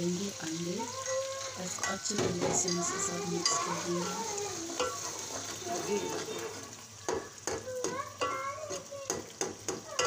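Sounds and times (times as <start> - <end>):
light sizzle: 0.0 - 10.0
metal spoon scraping a pot: 1.0 - 6.7.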